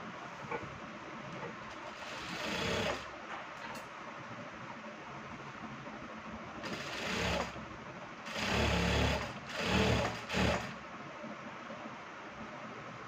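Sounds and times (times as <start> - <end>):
sewing machine stitching: 1.9 - 3.1, 6.6 - 7.6, 8.3 - 10.8.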